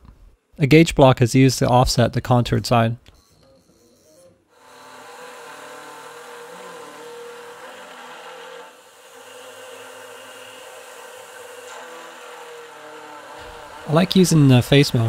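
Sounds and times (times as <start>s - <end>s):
milling cutter whine: 3.2s - 15.0s.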